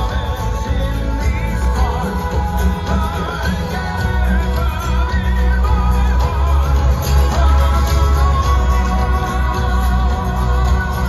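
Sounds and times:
heavy bass and steady beat: 0:00.0 - 0:11.0
person singing with vibrato: 0:00.0 - 0:11.0.

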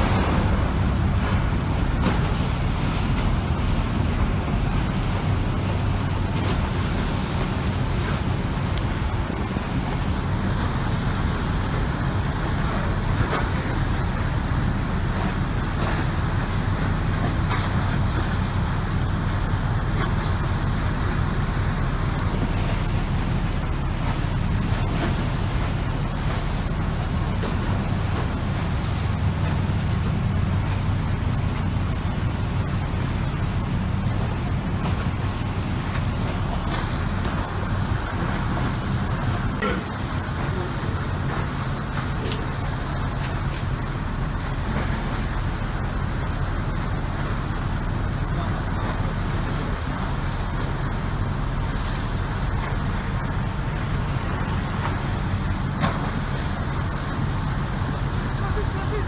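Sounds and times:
strong wind on microphone: 0:00.0 - 0:06.3
steady low hum: 0:00.0 - 0:59.0
wind buffeting microphone: 0:00.0 - 0:59.0.

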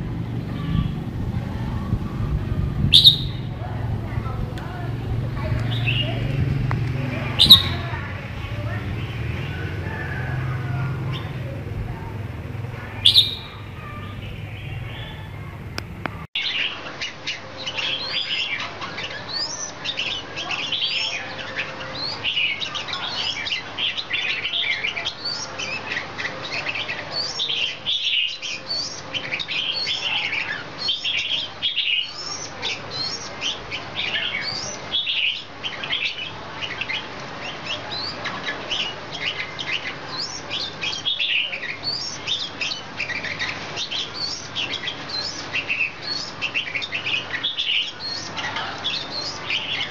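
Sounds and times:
bird chirping and whistling: 0:02.8 - 0:03.6, 0:07.4 - 0:08.0, 0:12.8 - 0:15.4, 0:38.8 - 0:49.9.

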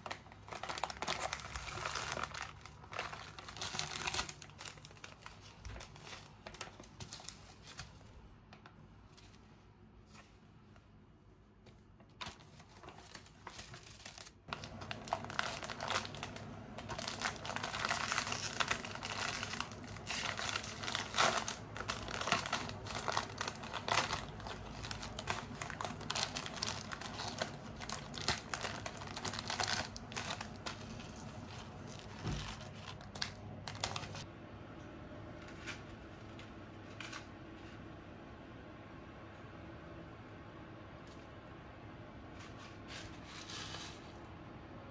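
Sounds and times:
plastic tearing: 0:00.0 - 0:07.9, 0:12.2 - 0:34.2
plastic packaging crinkling: 0:00.0 - 0:09.3, 0:12.0 - 0:34.3.

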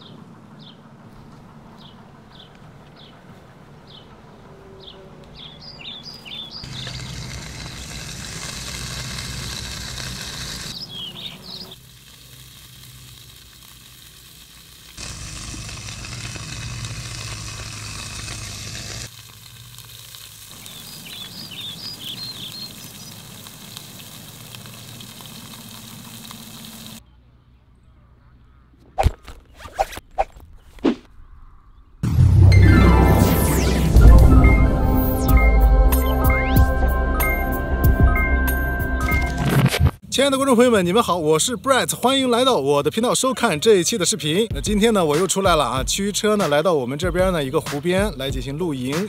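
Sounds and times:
bird chirps: 0:04.7 - 0:07.3, 0:10.7 - 0:11.8, 0:20.6 - 0:23.9
food sizzling in a pan: 0:06.6 - 0:27.0.

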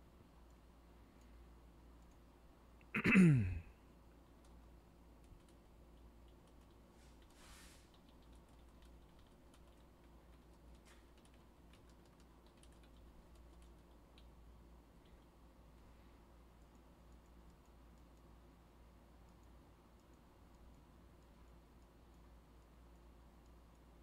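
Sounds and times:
keyboard and mouse clicks: 0:01.9 - 0:02.3, 0:04.2 - 0:14.4, 0:16.5 - 0:18.3, 0:19.2 - 0:23.9.

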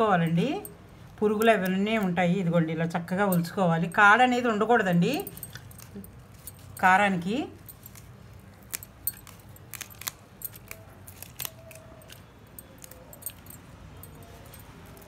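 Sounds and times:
garlic skins crackling: 0:04.4 - 0:15.0.

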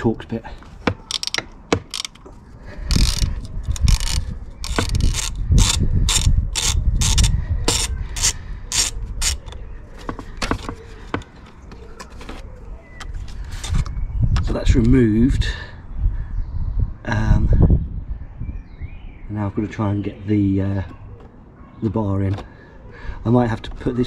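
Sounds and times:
ratcheting driver clicking: 0:00.8 - 0:09.6.

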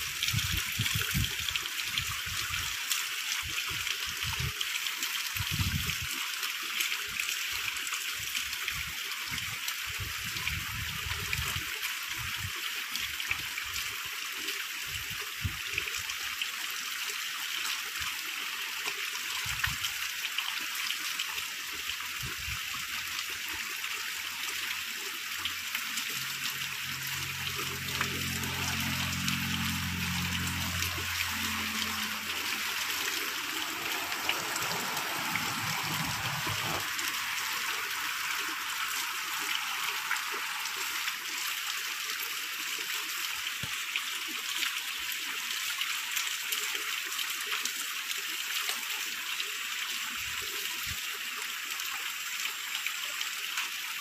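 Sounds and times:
shallow water trickling: 0:17.2 - 0:44.1
low hum: 0:26.6 - 0:37.8.

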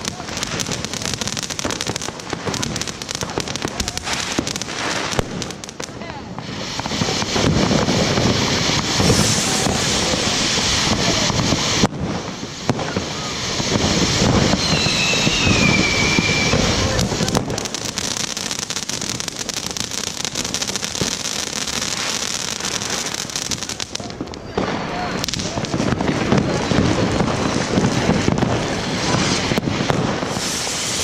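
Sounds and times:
firework hissing and crackling: 0:00.0 - 0:31.0
falling high whistle: 0:14.5 - 0:17.0.

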